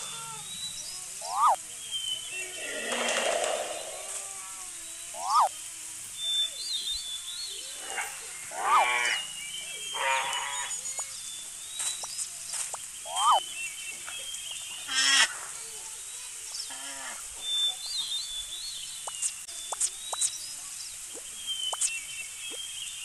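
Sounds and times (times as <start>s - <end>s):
animal call sound effects: 0.0s - 1.6s, 2.5s - 5.6s, 7.8s - 9.2s, 13.1s - 13.5s
birds chirping: 0.0s - 23.0s.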